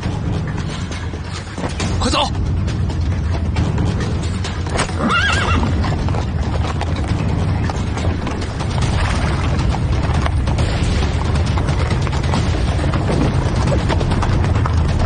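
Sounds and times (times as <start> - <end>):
galloping hooves clattering: 0.0 - 15.0
horse whinnying: 4.8 - 6.0.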